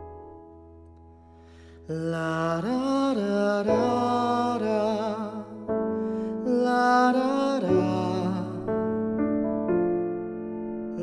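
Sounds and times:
gentle slow soundtrack music: 0.0 - 11.0.

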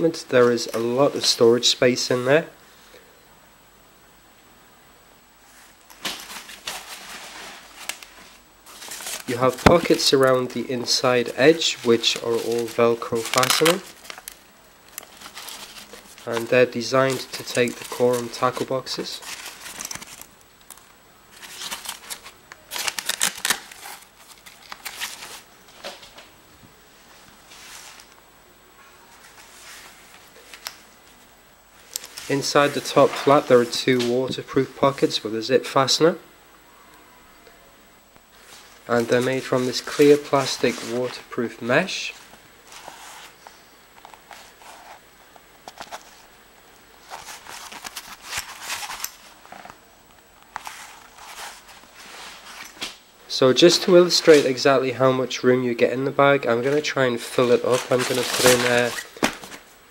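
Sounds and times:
bag flap rustling and crinkling: 5.9 - 11.0, 11.6 - 26.1, 47.0 - 49.8, 57.5 - 59.7
nylon fabric rustling: 42.2 - 43.4.

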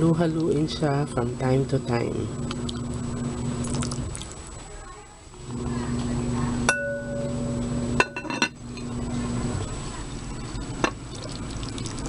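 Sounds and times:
glass lid clinking on pot: 8.0 - 8.6.

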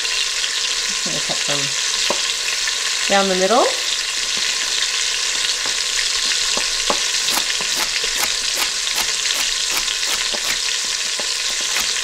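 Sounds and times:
chicken sizzling in oil: 0.0 - 12.0
knife chopping on wooden board: 6.6 - 10.6, 11.2 - 12.0.

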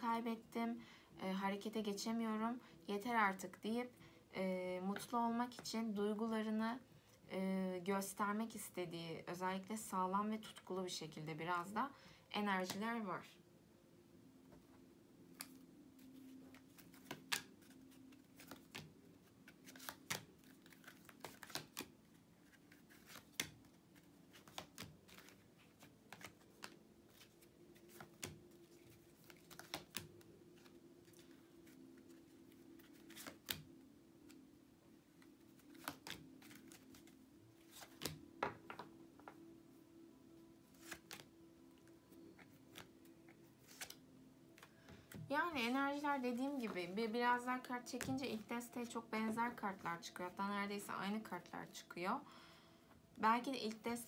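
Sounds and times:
cards being handled and laid down: 15.3 - 34.4, 35.2 - 39.4, 40.7 - 44.0, 47.9 - 48.4.

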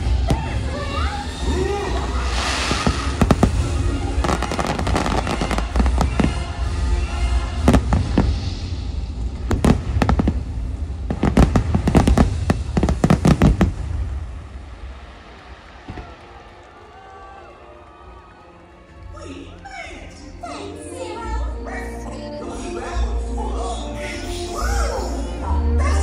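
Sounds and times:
fireworks bangs: 0.0 - 18.2
deep rumble of fireworks: 0.0 - 18.4.

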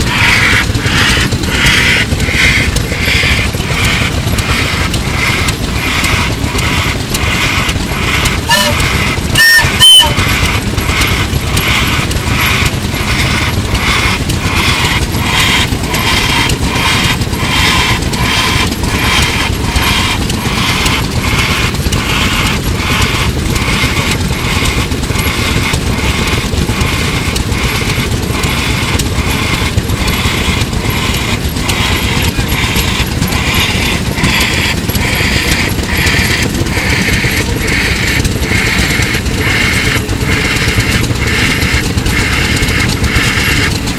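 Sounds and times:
steam engine exhaust puffing: 0.0 - 43.9
steam hissing: 0.0 - 43.9
whistle blast: 8.5 - 8.8, 9.4 - 10.2.

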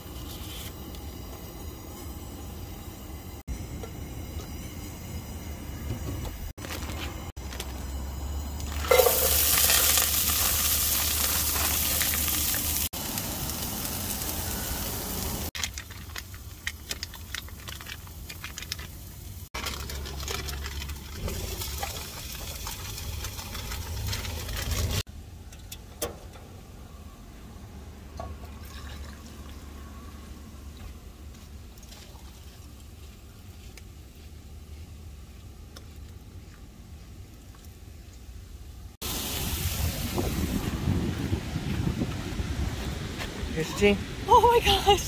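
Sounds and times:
camp stove hissing: 0.0 - 19.6, 39.0 - 40.8
handling noises: 6.0 - 7.9
hot water pouring into metal cups: 8.6 - 25.0, 28.4 - 29.7.

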